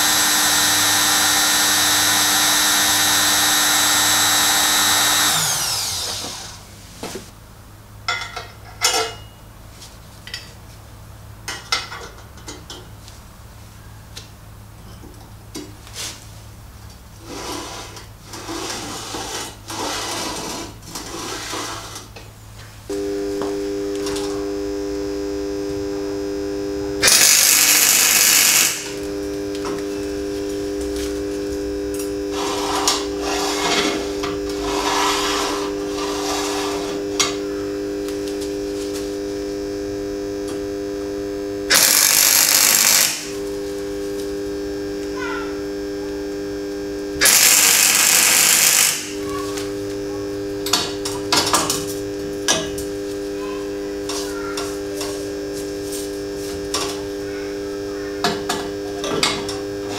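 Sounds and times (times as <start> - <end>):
steady hum: 0.0 - 59.9
welder crackling hiss: 27.0 - 37.3, 41.7 - 45.2, 46.3 - 50.0.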